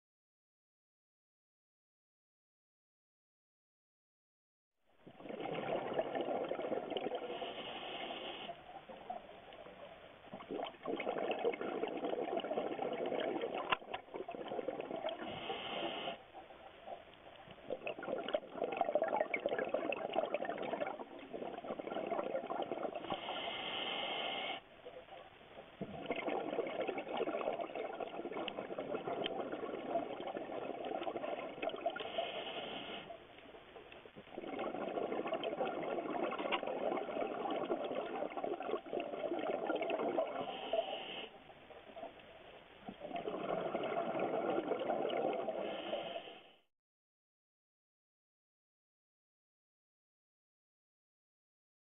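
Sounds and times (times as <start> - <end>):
regulator inhalation hiss: 7.3 - 8.5, 15.2 - 16.2, 23.1 - 24.6, 32.0 - 33.1, 40.4 - 41.4
regulator exhalation bubbling: 10.4 - 16.2, 25.8 - 33.1, 34.2 - 41.3, 42.9 - 46.6.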